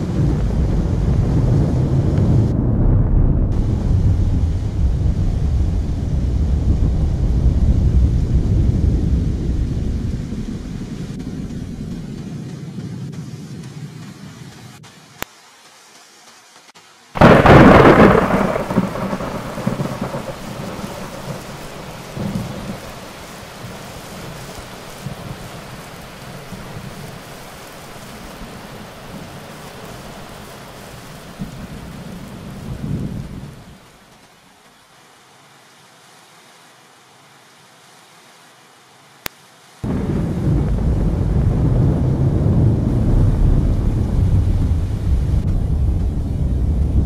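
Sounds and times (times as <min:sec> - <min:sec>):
rolling thunder rumble: 0:00.0 - 0:14.3, 0:17.2 - 0:33.9, 0:39.8 - 0:47.0
thunder clap: 0:00.0 - 0:14.5, 0:17.2 - 0:33.9, 0:39.8 - 0:47.0.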